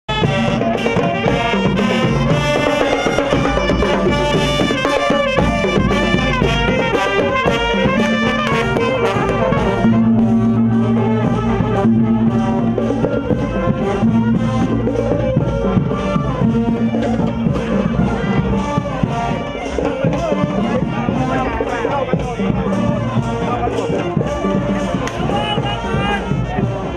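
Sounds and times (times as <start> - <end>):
bass and tenor drums: 0.1 - 26.9
marching brass band playing: 0.1 - 26.9.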